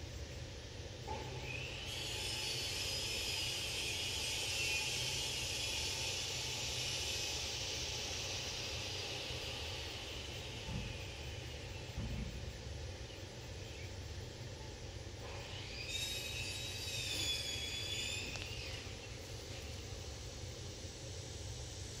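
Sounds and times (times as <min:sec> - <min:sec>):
high multi-tone squeal: 0:01.4 - 0:12.0, 0:15.3 - 0:19.8.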